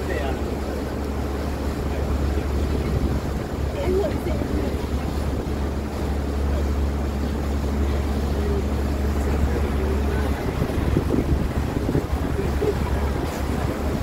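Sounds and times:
boat engine humming: 0:00.0 - 0:14.0
water rushing: 0:00.0 - 0:14.0
wind rushing: 0:10.4 - 0:14.0.

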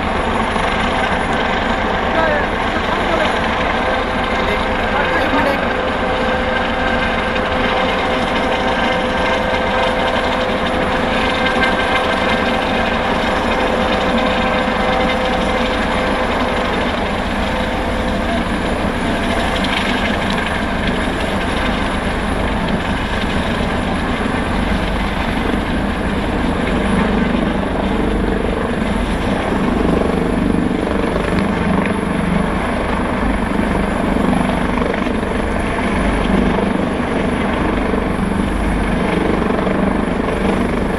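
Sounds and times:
helicopter rotor and engine: 0:00.0 - 0:40.9
steady whine: 0:00.0 - 0:40.9.

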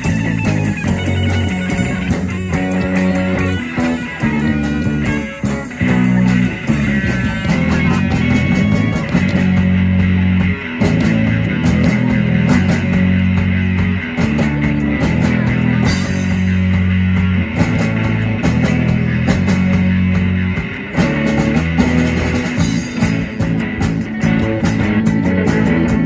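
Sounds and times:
live rock band playing: 0:00.0 - 0:26.0.

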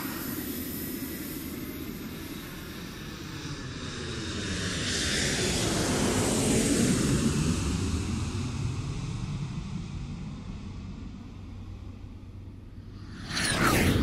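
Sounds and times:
airplane flying past: 0:00.0 - 0:14.0.

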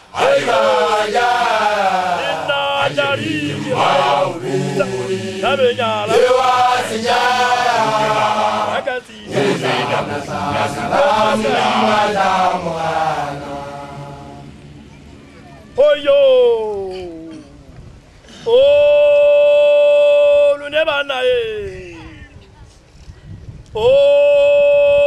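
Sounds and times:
men chanting: 0:00.0 - 0:14.6
leading voice chanting: 0:00.0 - 0:16.5.

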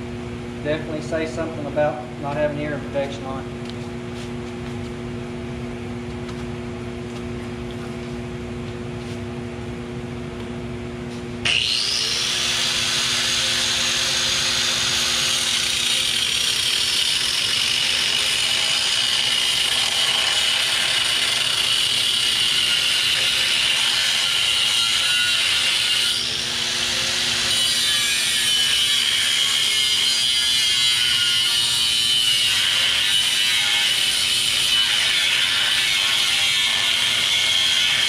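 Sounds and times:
steady low hum: 0:00.0 - 0:16.2
angle grinder cutting steel: 0:11.4 - 0:38.0.

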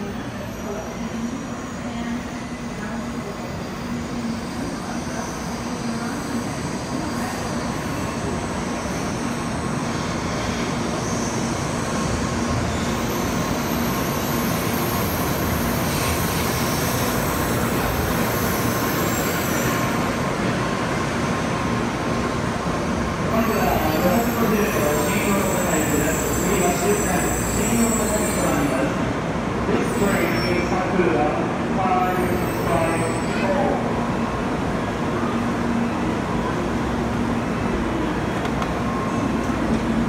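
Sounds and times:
train rushing rumble: 0:03.3 - 0:40.0.

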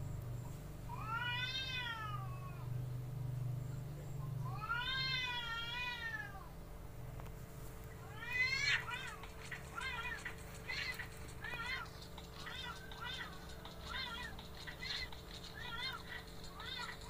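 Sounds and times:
cat yowling: 0:00.9 - 0:02.7, 0:04.5 - 0:06.5, 0:08.0 - 0:11.9, 0:12.5 - 0:17.0.

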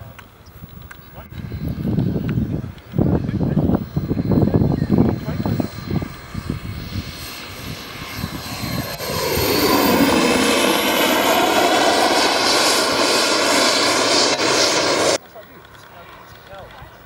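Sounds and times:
model jet turbines whining: 0:01.4 - 0:16.4.

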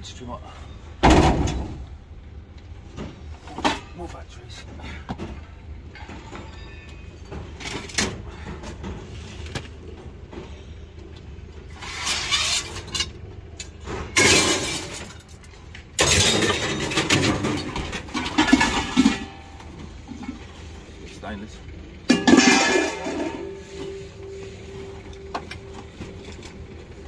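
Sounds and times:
loud metal crashes: 0:01.0 - 0:01.9, 0:13.8 - 0:15.2, 0:16.0 - 0:19.6, 0:22.0 - 0:23.6
scrap metal clattering and scraping: 0:02.9 - 0:11.0, 0:11.6 - 0:27.0.

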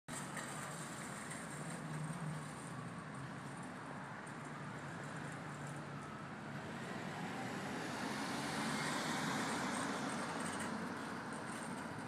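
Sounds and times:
passing vehicle: 0:00.1 - 0:12.0.

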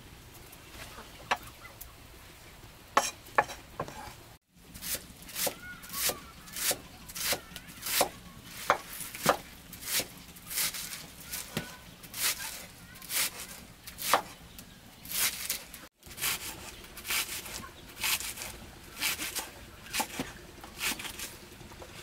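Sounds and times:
knife chopping green onions: 0:04.8 - 0:14.4, 0:15.1 - 0:21.3.

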